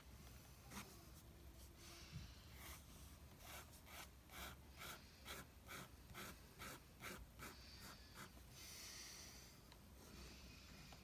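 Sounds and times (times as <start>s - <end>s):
pencil scratching on paper: 2.6s - 8.4s.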